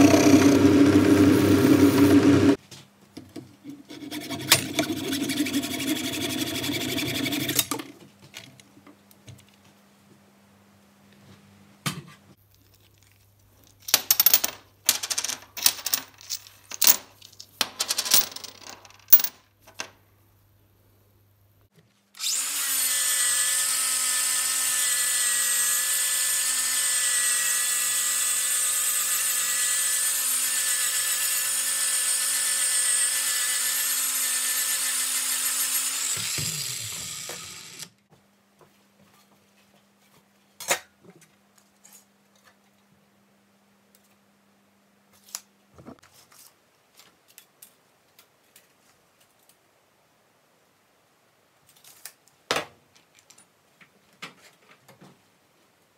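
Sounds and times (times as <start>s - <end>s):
angle grinder grinding: 0.0s - 2.6s, 22.2s - 37.9s
hacksaw cutting metal bar: 3.9s - 7.7s.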